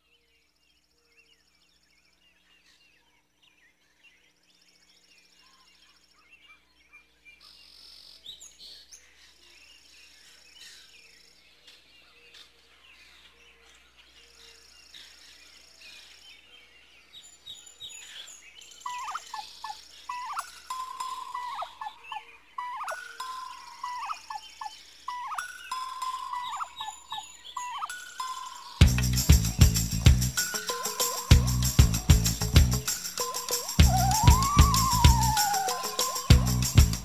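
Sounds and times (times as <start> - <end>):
birds chirping and calling: 8.3 - 37.0
insects trilling: 18.7 - 37.0
loud whistling: 28.8 - 37.0.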